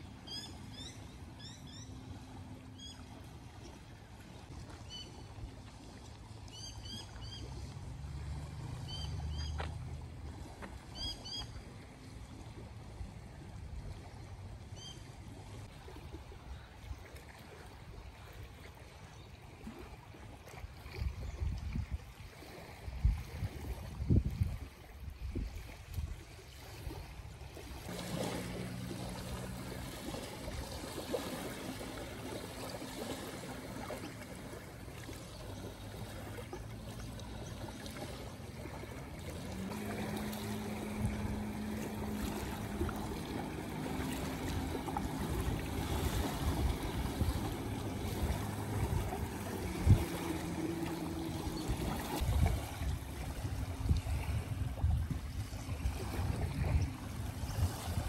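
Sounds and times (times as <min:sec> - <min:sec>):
small waves lapping on sand: 0:00.0 - 0:58.0
low steady hum: 0:27.8 - 0:58.0.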